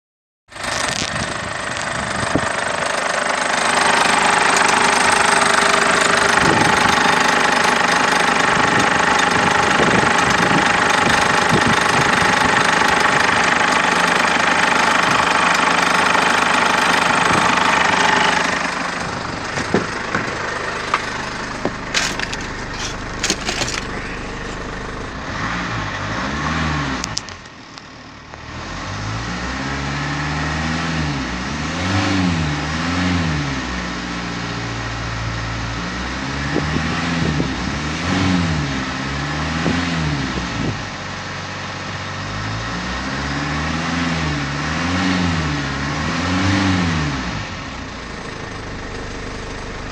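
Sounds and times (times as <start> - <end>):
diesel engine revving: 0.5 - 49.9
sharp clicks and knocks: 19.5 - 24.6.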